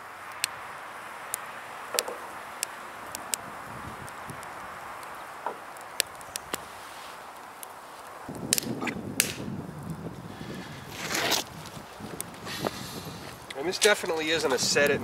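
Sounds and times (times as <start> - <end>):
wood fire hissing: 0.0 - 15.0
sharp clicks and knocks: 1.9 - 2.2
wind rumble on microphone: 2.1 - 5.0, 8.2 - 15.0.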